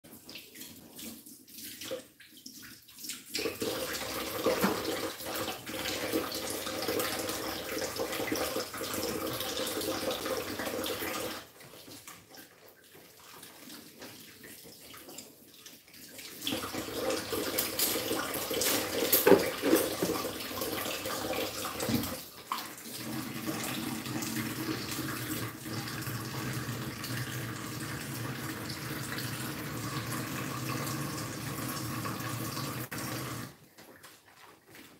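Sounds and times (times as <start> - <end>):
tap running into a sink: 3.4 - 11.3, 16.5 - 33.5
dishes knocking in a sink: 21.8 - 22.2.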